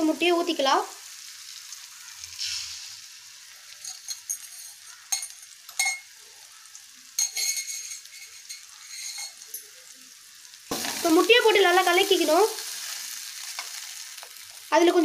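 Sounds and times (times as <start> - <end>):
egg sizzling in hot oil: 0.0 - 15.0
metal utensils clinking: 3.7 - 6.2, 7.2 - 9.8.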